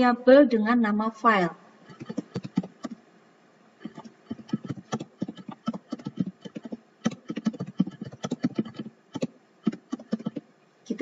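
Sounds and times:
keyboard typing clicks: 1.9 - 3.0, 3.8 - 10.4.

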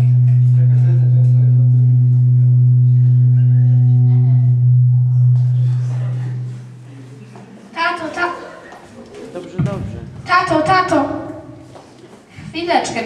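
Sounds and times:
faint voices: 0.0 - 10.4
low hum from pa system: 0.0 - 12.8.

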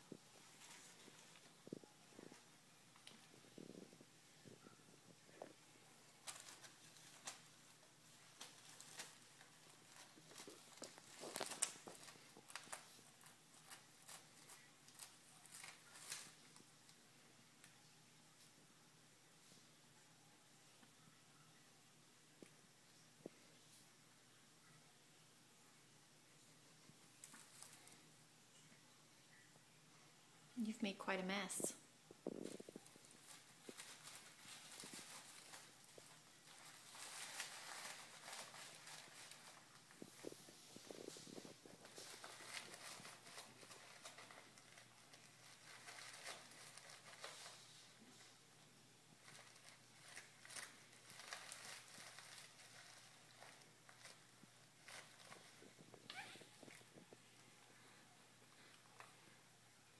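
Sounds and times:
crinkling of a packet: 6.1 - 16.6, 32.3 - 48.3, 49.2 - 57.1.

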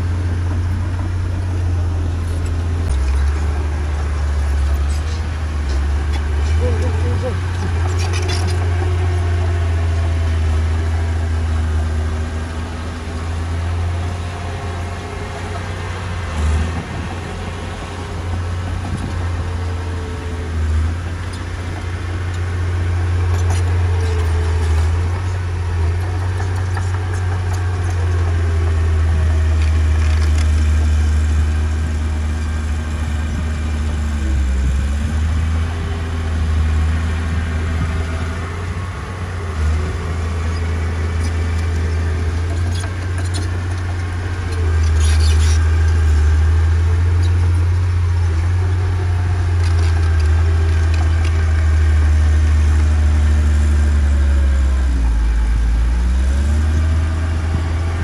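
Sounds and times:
heavy diesel engine rumbling: 0.0 - 58.0.

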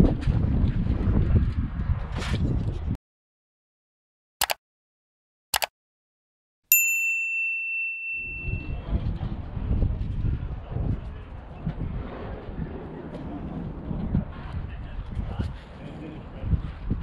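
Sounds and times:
wind noise: 0.0 - 3.0, 8.2 - 17.0
short clicks: 4.4 - 4.6, 5.5 - 5.7
bright metallic ding: 6.7 - 8.9.

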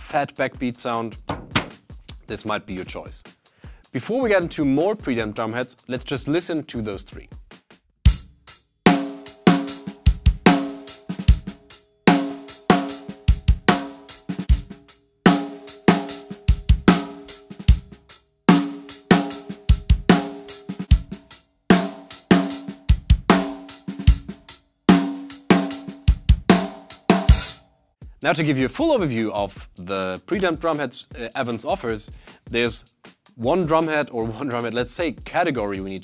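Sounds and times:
drum kit beat: 0.0 - 36.0.

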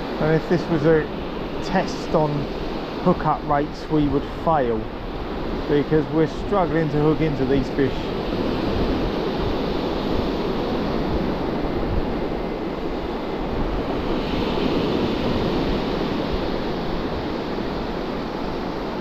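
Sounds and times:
surf washing onto beach: 0.0 - 19.0
wind buffeting microphone: 0.0 - 19.0.

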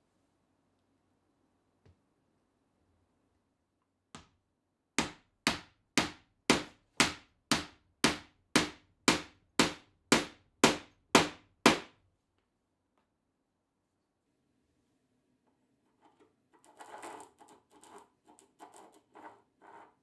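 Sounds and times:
hammer striking wooden block: 5.0 - 11.9.

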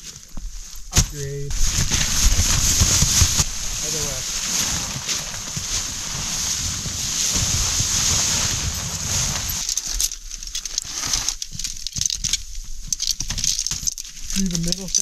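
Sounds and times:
tent fabric rustling: 0.0 - 12.1
wind buffeting the microphone: 1.5 - 9.6
tent poles clicking and knocking: 7.3 - 15.0.

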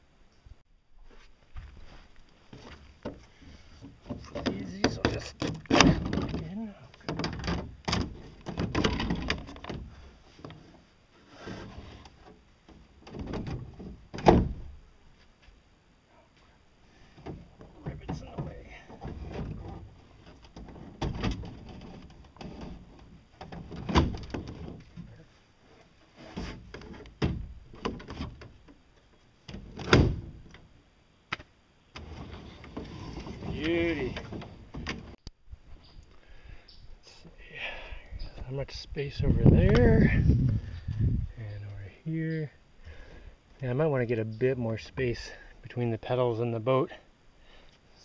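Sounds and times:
hollow clunks: 2.5 - 14.8, 17.0 - 25.2.

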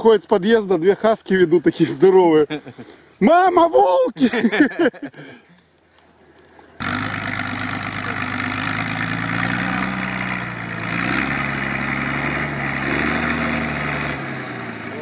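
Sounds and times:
truck engine running at low revs: 6.8 - 15.0.

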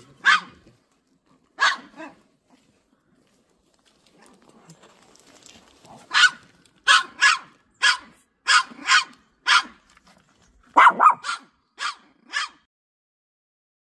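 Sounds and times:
small dog barking: 0.1 - 0.6, 1.6 - 2.2, 6.0 - 9.8, 10.7 - 12.7.

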